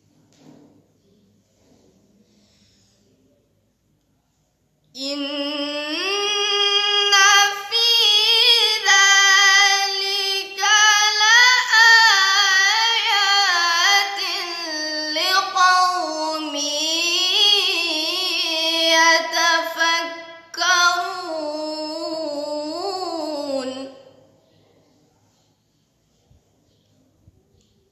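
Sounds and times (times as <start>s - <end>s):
girl reciting melodically: 4.9s - 24.4s.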